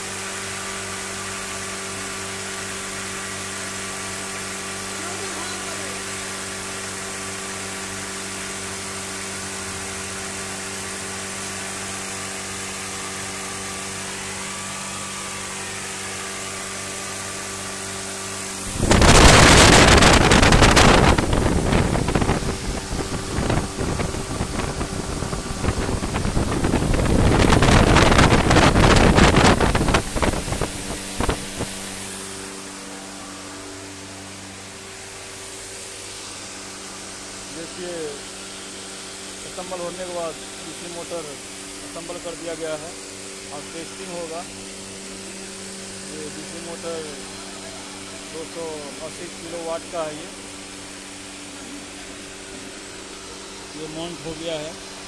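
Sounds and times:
machine hum with low tones: 0.0s - 55.0s
loud rushing crackling noise: 18.5s - 32.6s.

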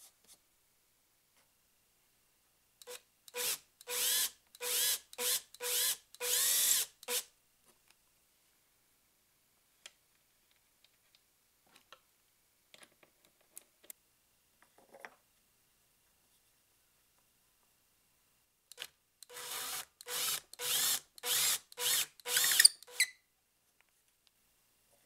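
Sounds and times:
cordless drill boring into wood: 2.8s - 7.2s, 19.2s - 23.1s.

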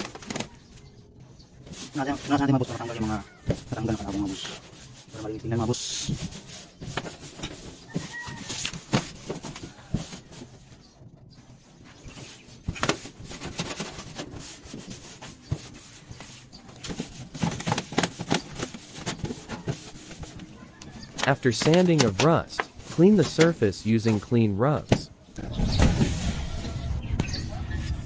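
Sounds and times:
cloth rag rubbing metal sheet: 1.6s - 10.8s, 11.6s - 20.8s.

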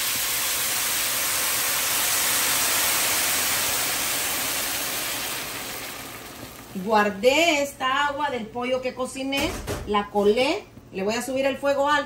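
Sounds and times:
broth pouring into pan: 0.0s - 7.2s.

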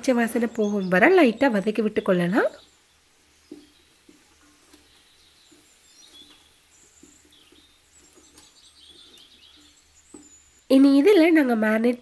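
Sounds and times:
birds chirping: 0.0s - 12.0s
wooden spatula scraping metal pot: 2.6s - 10.7s.

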